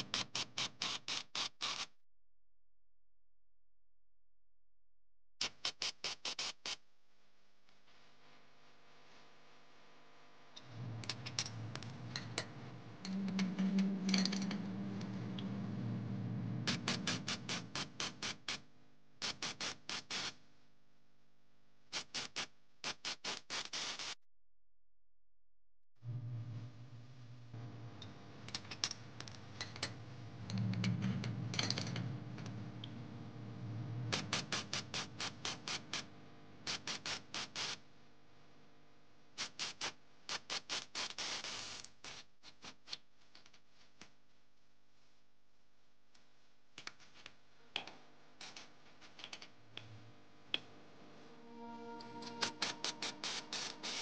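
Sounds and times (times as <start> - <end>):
steady low hum: 10.6 - 18.6, 26.0 - 36.6.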